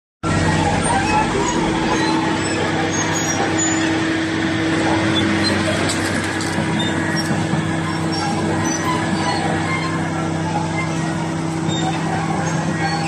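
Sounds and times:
excavator diesel engine running: 0:00.2 - 0:13.0.

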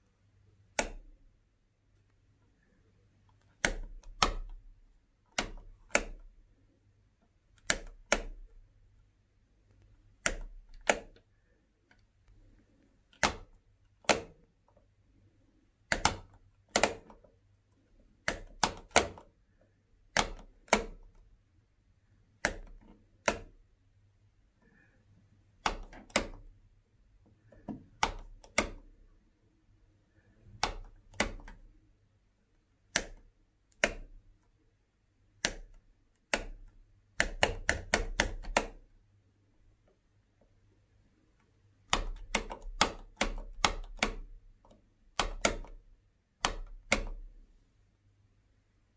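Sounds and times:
light switch clicking: 0:00.7 - 0:01.1, 0:22.4 - 0:23.6, 0:32.9 - 0:34.1, 0:35.4 - 0:38.8.

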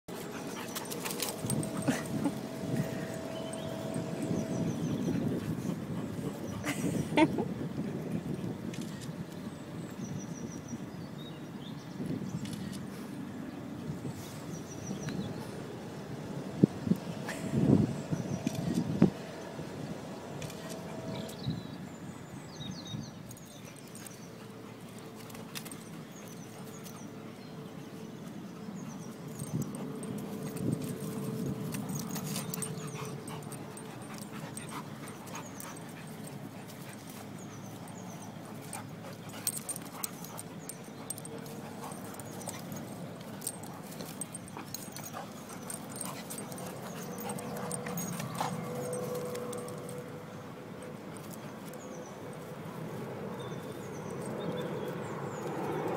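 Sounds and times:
dogs growling while playing: 0:00.2 - 0:07.2, 0:29.4 - 0:49.8.

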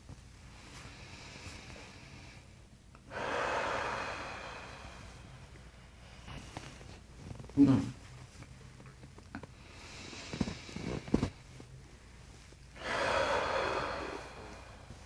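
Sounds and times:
person breathing deeply: 0:00.5 - 0:06.7, 0:09.5 - 0:11.4, 0:12.8 - 0:15.0.

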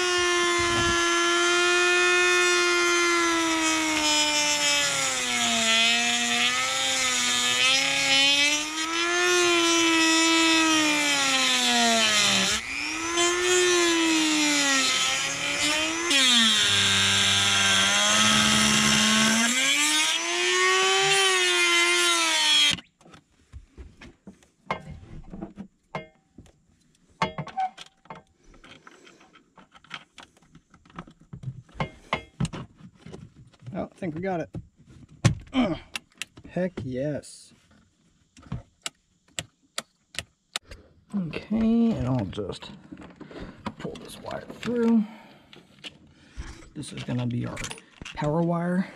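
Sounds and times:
rotary tool cutting plastic: 0:00.0 - 0:22.9.

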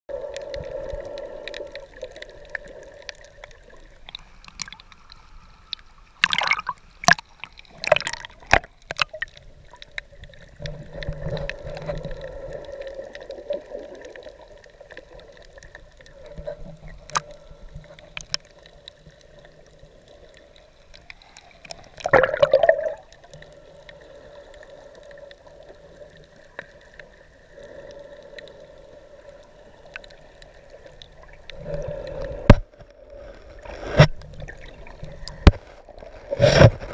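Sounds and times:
muffled underwater water sound: 0:00.1 - 0:36.9
sharp knocks underwater: 0:06.2 - 0:09.2, 0:22.0 - 0:23.0.

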